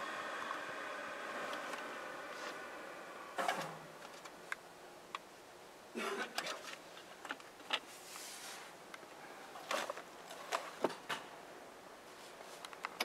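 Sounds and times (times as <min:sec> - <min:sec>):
short rustle: 0:07.8 - 0:08.8.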